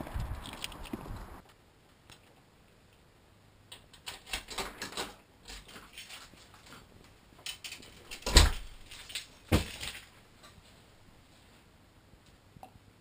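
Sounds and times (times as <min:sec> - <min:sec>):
wooden door closing thud: 0:08.2 - 0:08.7.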